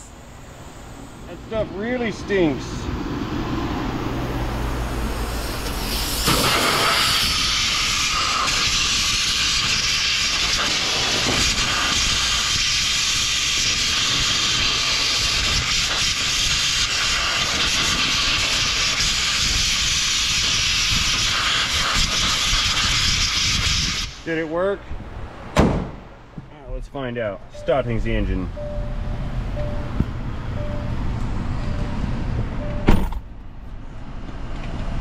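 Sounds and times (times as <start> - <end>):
compressed-air blow gun hissing: 5.1 - 24.2.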